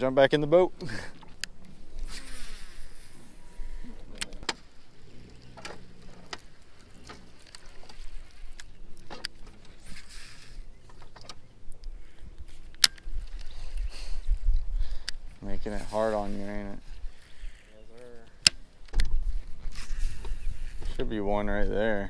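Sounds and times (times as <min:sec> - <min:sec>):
fishing line cast hiss: 0:02.0 - 0:03.4.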